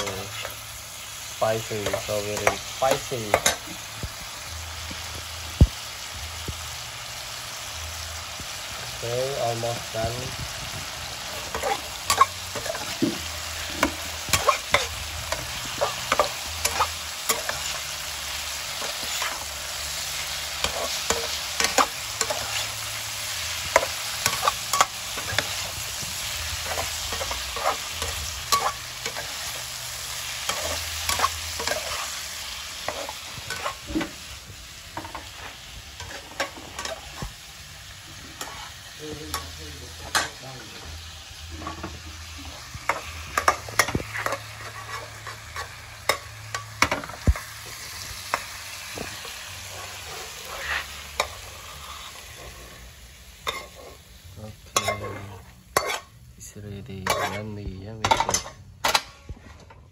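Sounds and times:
food sizzling in a wok: 0:00.0 - 0:59.9
metal spatula scraping pan: 0:11.2 - 0:34.3, 0:38.1 - 0:40.8, 0:41.6 - 0:52.8, 0:53.4 - 0:54.0, 0:54.7 - 0:56.2, 0:57.0 - 0:59.2.

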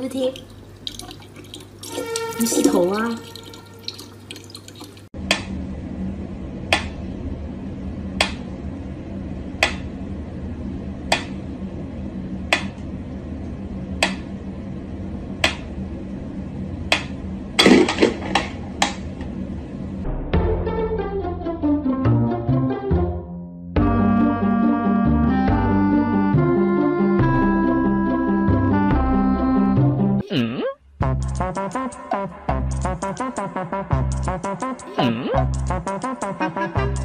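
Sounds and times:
low steady hum: 0:00.0 - 0:20.2.

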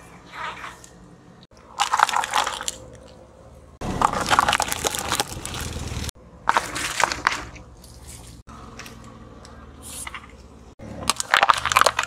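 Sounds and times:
tyre crushing plastic objects: 0:01.7 - 0:02.9, 0:03.8 - 0:08.0, 0:10.8 - 0:12.0.

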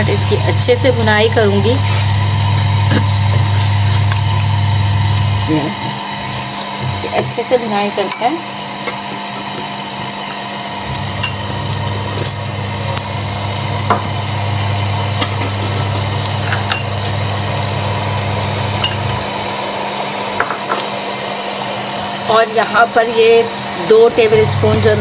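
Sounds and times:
low hum: 0:00.0 - 0:05.6, 0:10.8 - 0:19.4
masala sizzling in hot oil: 0:00.0 - 0:25.0.

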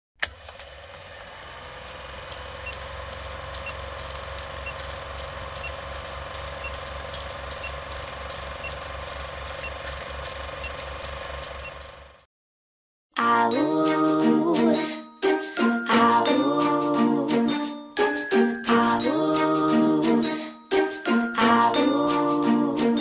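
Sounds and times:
film projector clattering: 0:00.2 - 0:12.2
short faint beeps: 0:04.4 - 0:12.0.

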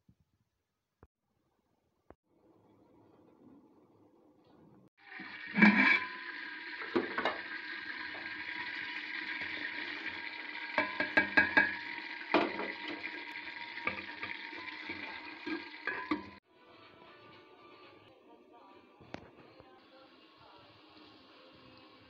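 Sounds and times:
spoon knocking against pot: 0:10.8 - 0:12.8.

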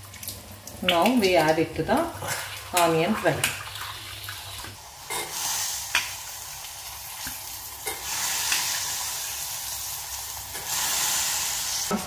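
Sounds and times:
beans sizzling in hot oil: 0:03.9 - 0:12.0.

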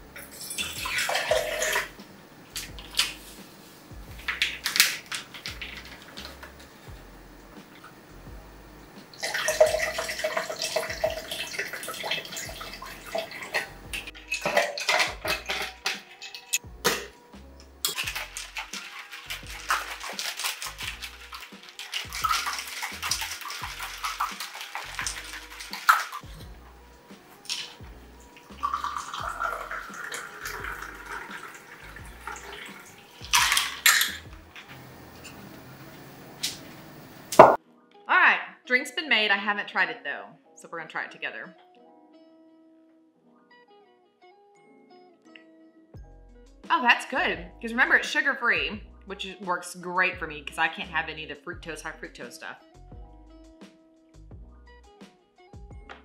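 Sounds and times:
liquid trickling into metal shaker: 0:00.2 - 0:02.0, 0:09.1 - 0:16.6, 0:17.8 - 0:26.4, 0:27.4 - 0:27.8, 0:28.4 - 0:34.3.

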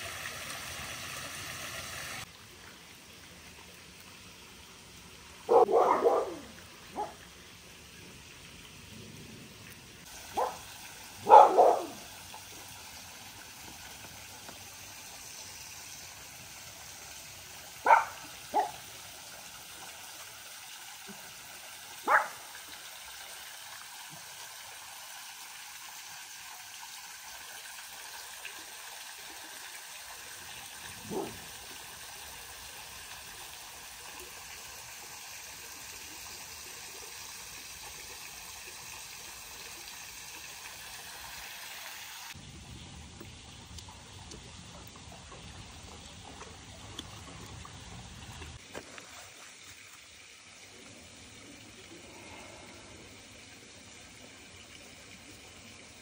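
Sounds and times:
creek trickling: 0:00.0 - 0:56.0
dog barking: 0:05.5 - 0:07.2, 0:10.4 - 0:10.6, 0:11.2 - 0:12.0, 0:17.8 - 0:18.8, 0:22.0 - 0:22.4, 0:31.0 - 0:31.4.

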